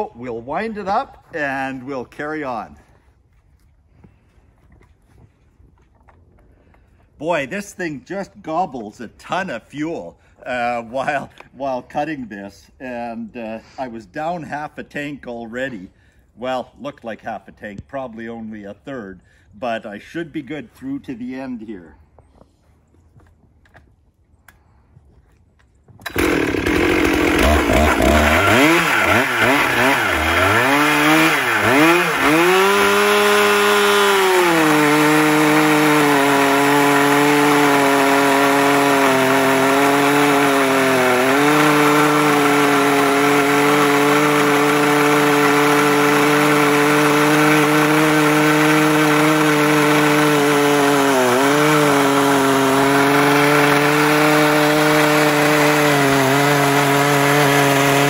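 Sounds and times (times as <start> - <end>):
chainsaw revving and cutting log: 26.0 - 58.0.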